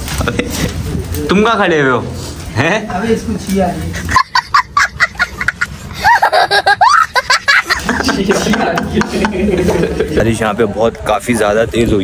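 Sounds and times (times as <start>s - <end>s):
voices talking: 0.0s - 12.0s
person laughing in high bursts: 4.0s - 9.5s.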